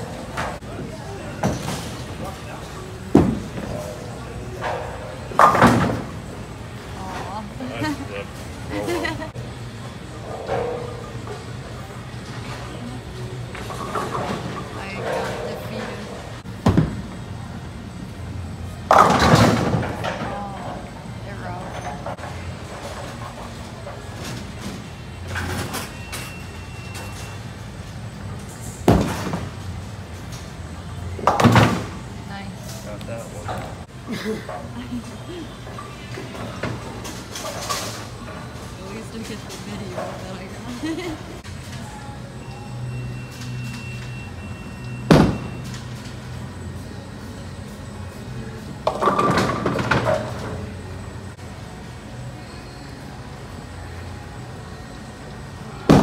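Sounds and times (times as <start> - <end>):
rumble of rolling bowling balls: 0.0 - 32.3, 45.1 - 52.4
bowling ball crashing into pins: 18.9 - 20.4.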